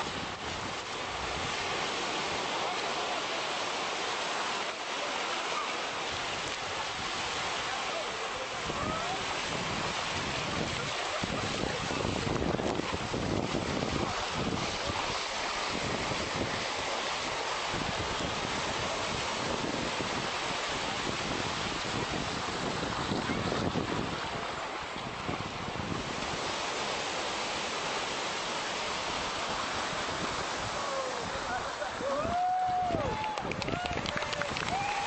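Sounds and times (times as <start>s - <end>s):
small waves breaking on shore: 0.0s - 35.0s
wind buffeting microphone: 8.5s - 26.7s, 29.6s - 35.0s.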